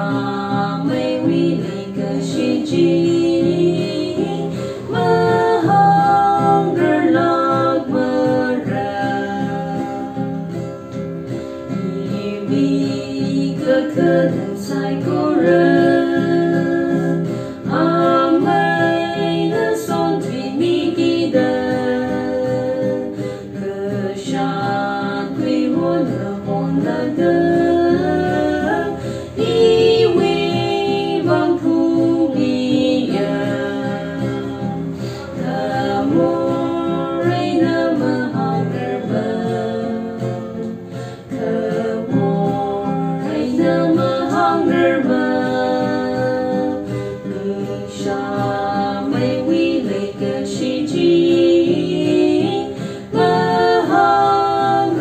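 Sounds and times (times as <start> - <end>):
strummed acoustic guitar: 0.0 - 55.0
women singing a hymn: 0.0 - 55.0.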